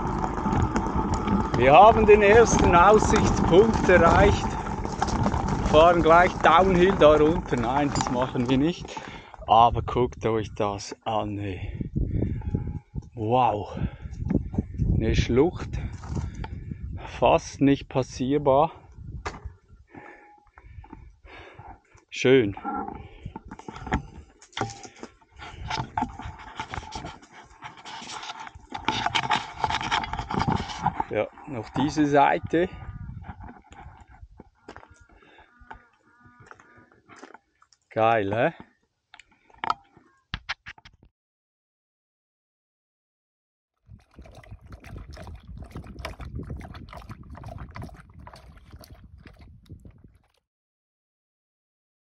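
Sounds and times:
dog lapping water: 0:43.9 - 0:50.4.

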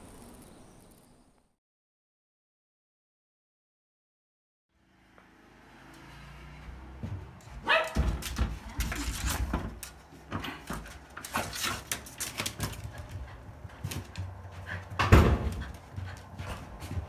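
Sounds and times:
thuds and knocks of movement: 0:07.0 - 0:17.0
small dog barking: 0:07.6 - 0:08.1.

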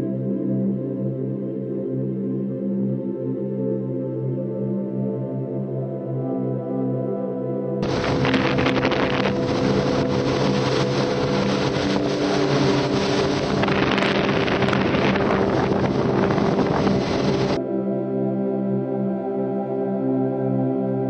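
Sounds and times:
motorboat running: 0:07.8 - 0:17.6
wind buffeting microphone: 0:07.8 - 0:17.6.

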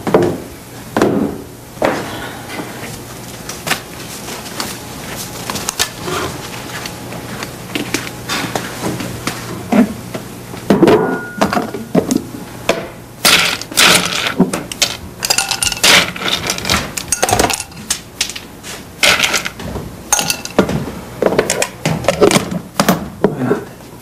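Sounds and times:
glassware clinking: 0:15.3 - 0:16.0, 0:17.1 - 0:17.8, 0:20.1 - 0:20.6.

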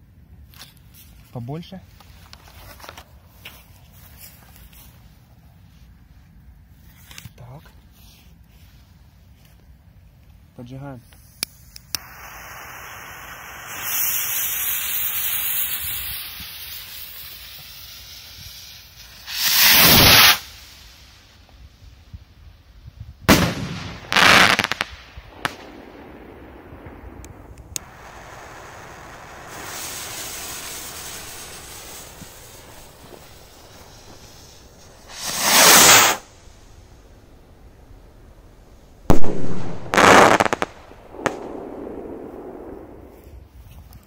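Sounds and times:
sharp firework cracks: 0:11.2 - 0:21.6, 0:23.2 - 0:43.4
rocket launching hiss: 0:11.2 - 0:22.0, 0:23.1 - 0:43.4
firework bang: 0:19.2 - 0:20.5, 0:23.2 - 0:37.7, 0:39.0 - 0:43.2
skyrocket fizzing: 0:27.3 - 0:37.1.

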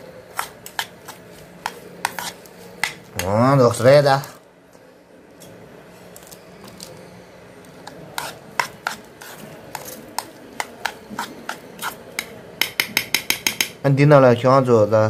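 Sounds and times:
metal spoon scraping ceramic bowl: 0:07.9 - 0:12.3.

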